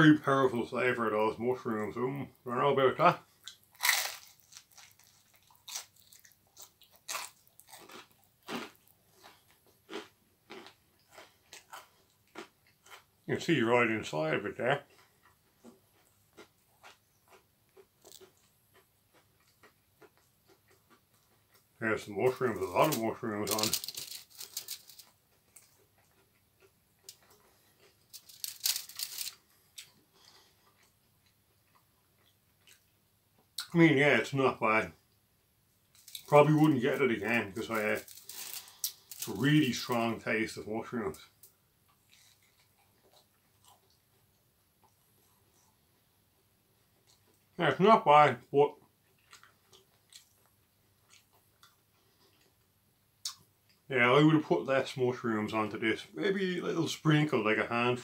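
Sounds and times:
person biting and chewing pizza: 0:03.4 - 0:13.1, 0:22.3 - 0:32.9, 0:36.0 - 0:39.8, 0:41.9 - 0:44.0
crackling rustle: 0:03.6 - 0:13.0, 0:21.2 - 0:26.4, 0:27.0 - 0:31.4, 0:35.9 - 0:44.0.

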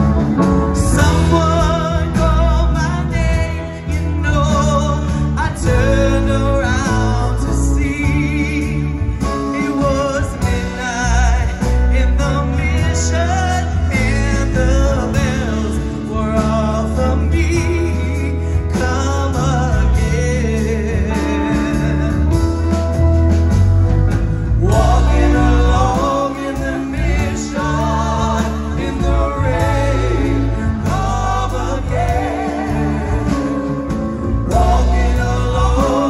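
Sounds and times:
drums: 0:00.0 - 0:36.0
electric guitar: 0:00.0 - 0:36.0
keyboards: 0:00.0 - 0:36.0
backing singers: 0:24.4 - 0:36.0.

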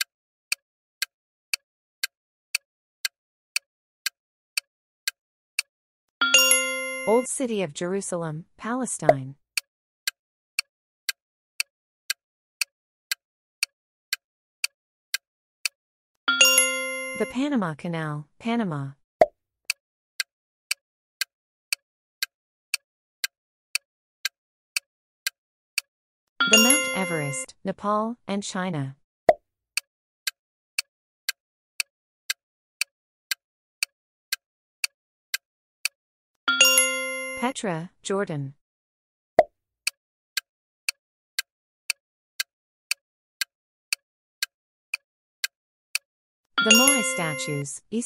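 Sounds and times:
countdown timer ticking: 0:06.2 - 0:07.5, 0:08.8 - 0:09.3, 0:16.3 - 0:18.8, 0:26.4 - 0:27.5, 0:36.5 - 0:38.4, 0:46.6 - 0:48.0.

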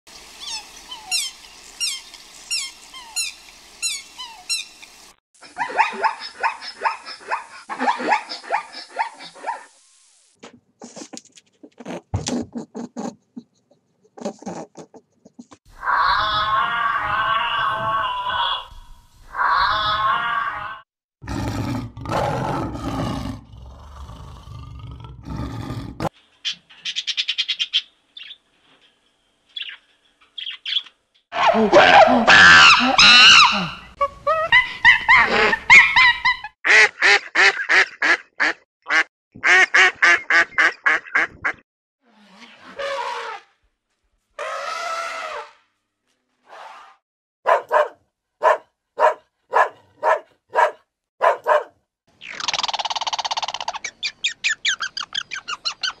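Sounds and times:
lion roaring: 0:21.2 - 0:26.1
zebra barking: 0:47.5 - 0:51.7
budgerigars chirping: 0:52.4 - 0:56.0.

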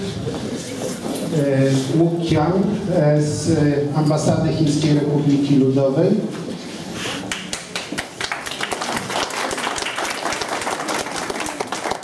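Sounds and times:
audience applauding: 0:07.3 - 0:12.0.

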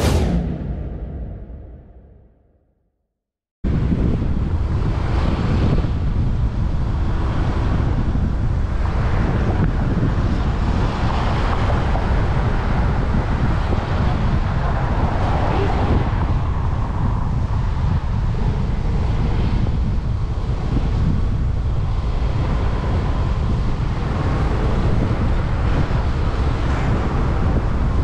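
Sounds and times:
wind buffeting microphone: 0:03.6 - 0:28.0.

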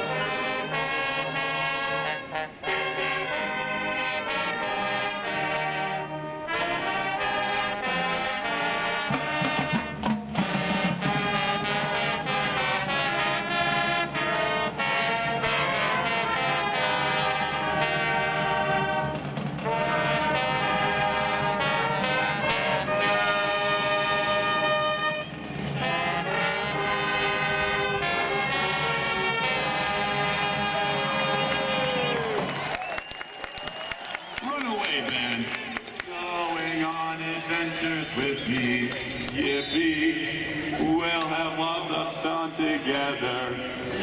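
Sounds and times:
low brass: 0:00.0 - 0:32.6
marching band playing: 0:00.0 - 0:44.0.

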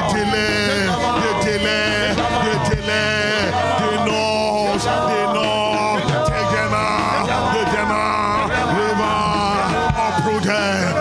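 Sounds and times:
instrumental backing music: 0:00.0 - 0:11.0
man singing into a microphone: 0:00.0 - 0:11.0.

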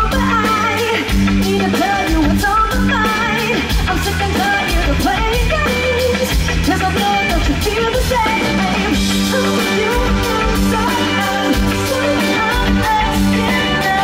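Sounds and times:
drum kit: 0:00.0 - 0:14.0
electric guitar: 0:00.0 - 0:14.0
woman singing into a microphone: 0:00.0 - 0:14.0.

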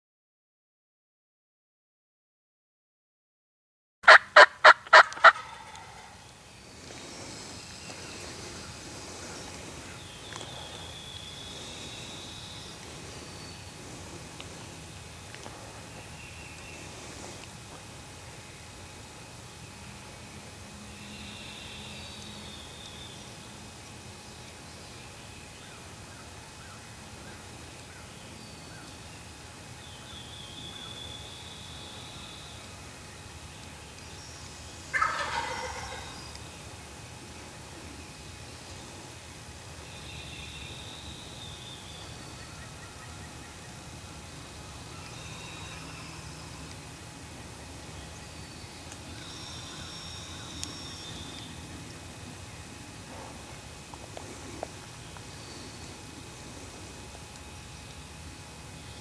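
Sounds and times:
turkey calling: 0:04.0 - 0:13.2, 0:34.9 - 0:36.4
outdoor ambience: 0:04.0 - 0:59.0
turkey yelps: 0:04.1 - 0:06.2, 0:34.9 - 0:36.1
faint high bird calls: 0:04.1 - 0:14.0, 0:39.8 - 0:46.7, 0:47.4 - 0:51.7.

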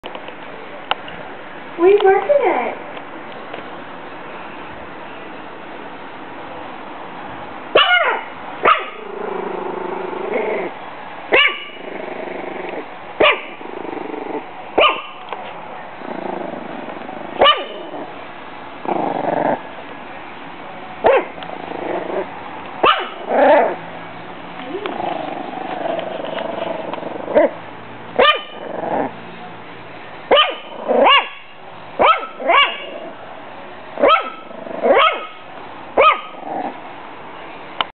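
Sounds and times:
puppy barking: 0:07.7 - 0:09.1, 0:11.3 - 0:11.8, 0:13.2 - 0:13.6, 0:14.8 - 0:15.3, 0:17.4 - 0:18.1, 0:21.0 - 0:21.4, 0:22.8 - 0:23.8, 0:28.2 - 0:28.7, 0:30.3 - 0:33.2, 0:34.0 - 0:36.7
puppy growling: 0:08.9 - 0:10.8, 0:11.6 - 0:14.6, 0:15.9 - 0:18.2, 0:18.8 - 0:19.7, 0:21.1 - 0:23.9, 0:24.6 - 0:27.6, 0:28.4 - 0:29.2, 0:30.6 - 0:31.2, 0:32.0 - 0:33.3, 0:34.0 - 0:35.4, 0:36.3 - 0:36.9.

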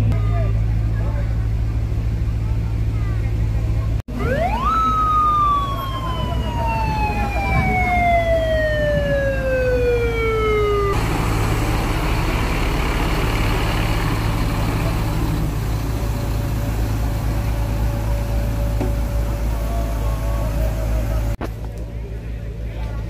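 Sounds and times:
vehicle engine low hum: 0:00.0 - 0:23.0
siren winding down: 0:04.1 - 0:21.4.

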